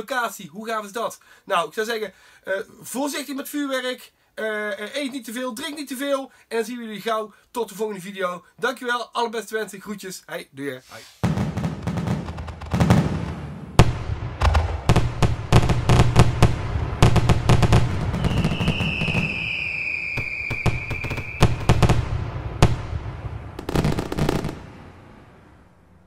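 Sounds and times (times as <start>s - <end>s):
fireworks bursting and crackling: 10.9s - 25.3s
firework whistle: 17.9s - 22.7s.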